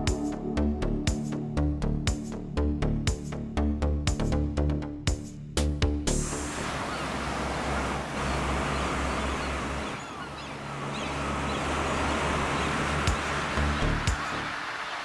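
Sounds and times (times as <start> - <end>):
boat motor hum: 6.1 - 15.0
water wash: 6.2 - 15.0.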